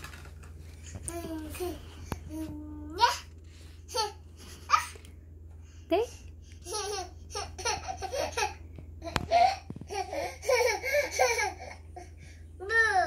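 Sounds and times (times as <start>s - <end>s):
toddler laughing: 6.6s - 11.8s.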